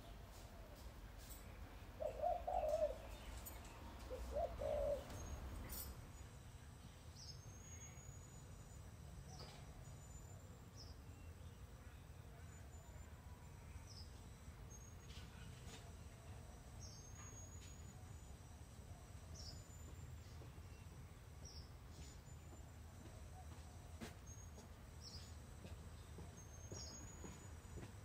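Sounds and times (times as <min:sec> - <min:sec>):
pigeon cooing: 0:02.0 - 0:03.2, 0:04.1 - 0:05.4.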